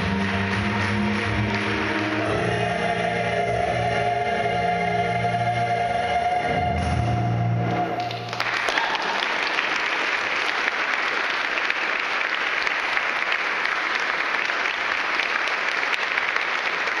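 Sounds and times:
audience applause: 0.0s - 2.4s, 8.0s - 17.0s
choir holding a chord: 0.0s - 8.1s.

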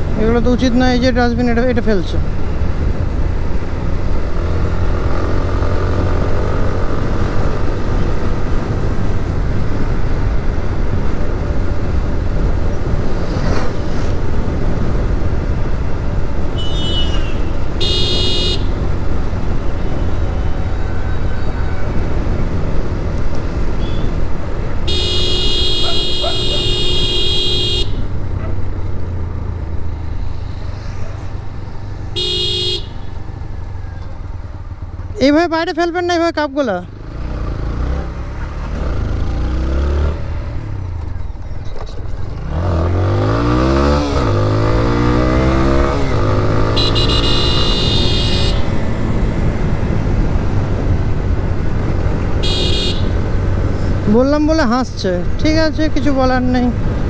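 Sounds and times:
motorcycle engine and road noise: 0.0s - 57.0s
vehicle horn beeping: 16.6s - 18.7s, 23.8s - 24.2s, 24.9s - 28.0s, 32.2s - 33.1s, 46.6s - 48.7s, 52.4s - 53.1s.

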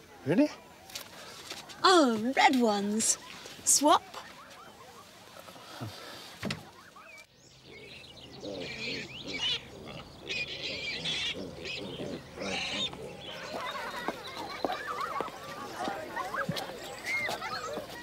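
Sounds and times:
birds chirping: 0.0s - 18.0s
piglets squealing: 8.4s - 13.9s.

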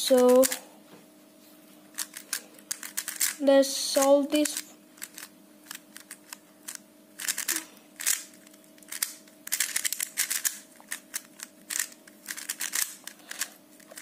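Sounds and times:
puzzle cube plastic clicking: 1.9s - 3.4s, 4.0s - 14.0s.

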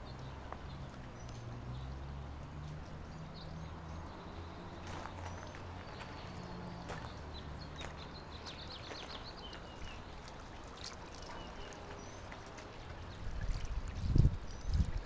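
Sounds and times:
fountain water burbling: 7.1s - 15.0s.

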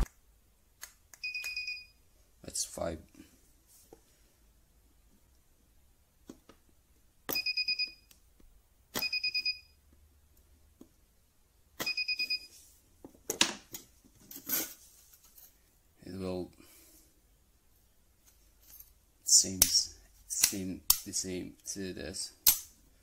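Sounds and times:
high beeps: 7.3s - 8.0s, 9.0s - 9.8s, 11.8s - 12.5s.

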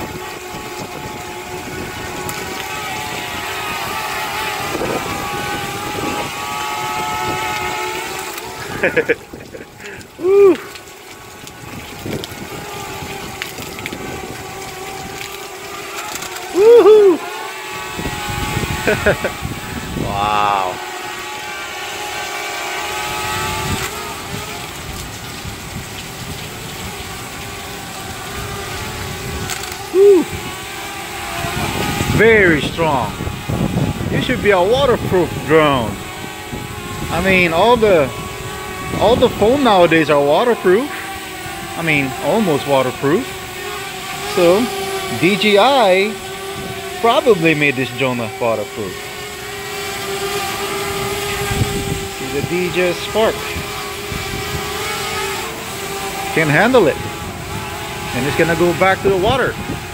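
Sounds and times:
drone propellers whining: 0.0s - 59.9s
heavy rain hiss: 0.0s - 59.9s
person whooping: 9.8s - 10.7s, 16.5s - 17.4s, 20.0s - 20.8s, 29.9s - 30.4s.

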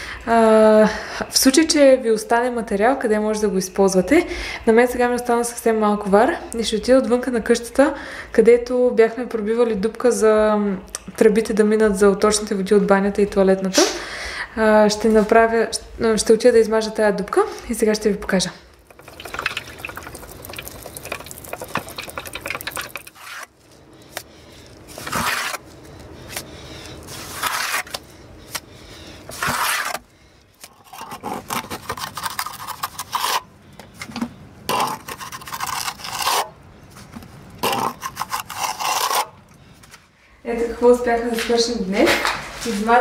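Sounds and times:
trowel scraping mortar: 21.0s - 23.6s, 24.9s - 25.6s, 27.0s - 28.0s, 29.3s - 30.0s, 30.7s - 33.5s, 34.7s - 36.6s, 37.6s - 39.4s.

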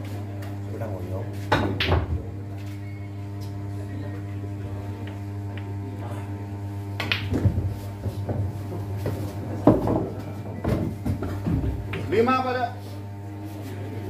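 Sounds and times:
steady low hum: 0.0s - 14.0s
pool cue striking ball: 1.4s - 2.3s, 7.0s - 12.1s
balls knocking on cushions: 7.0s - 12.1s
billiard balls clacking: 7.0s - 12.1s.

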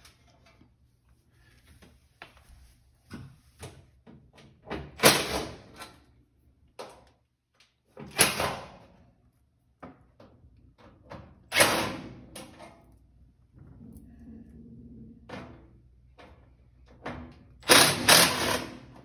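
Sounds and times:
cordless drill bursts: 17.6s - 18.9s.

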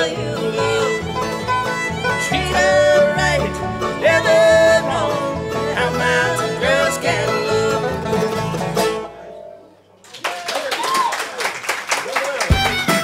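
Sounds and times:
sung vocal harmony: 0.0s - 1.2s, 2.2s - 8.1s
fiddle: 0.0s - 9.0s, 12.5s - 13.0s
banjo: 0.0s - 9.4s, 12.5s - 13.0s
mandolin: 0.0s - 9.4s, 12.5s - 13.0s
bluegrass band playing: 0.0s - 9.6s, 12.5s - 13.0s
guitar: 0.0s - 9.9s, 12.5s - 13.0s.

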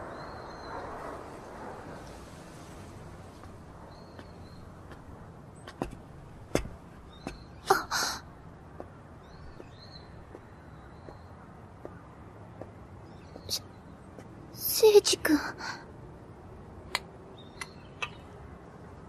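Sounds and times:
footsteps on stone: 3.4s - 7.5s, 8.7s - 12.0s
faint bird chirps: 13.0s - 14.0s.

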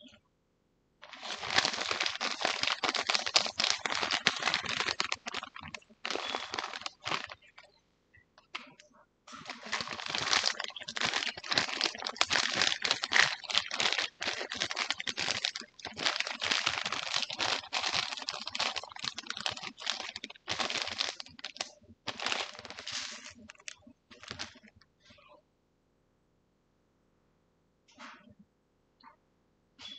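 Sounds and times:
crinkly material crumpling: 1.0s - 7.8s, 8.4s - 24.8s.

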